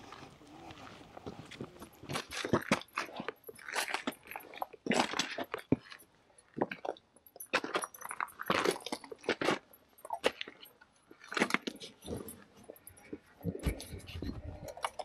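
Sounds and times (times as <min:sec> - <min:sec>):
footsteps crunching on rocky trail: 0:00.0 - 0:04.4.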